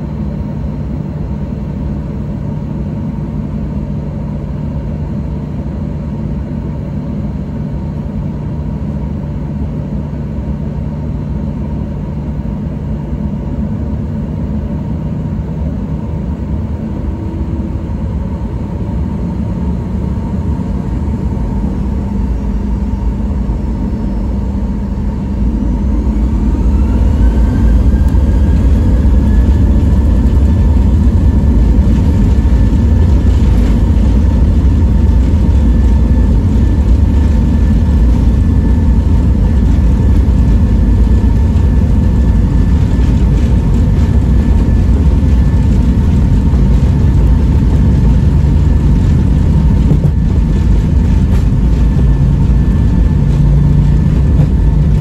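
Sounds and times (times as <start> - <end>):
deep takeoff rumble: 0.0 - 55.0
jet engines idling hum: 0.0 - 55.0
jet engines spooling up: 16.4 - 55.0.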